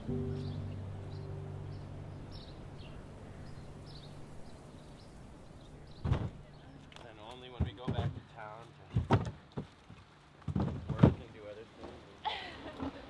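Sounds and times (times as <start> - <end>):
low background music notes: 0.0 - 5.5
small birds chirping: 0.0 - 7.6.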